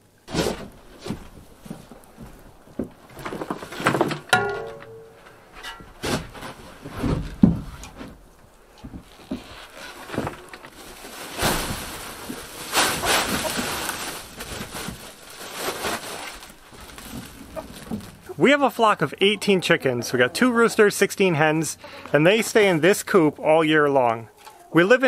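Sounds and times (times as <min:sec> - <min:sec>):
wood shavings rustling: 0:09.0 - 0:18.9.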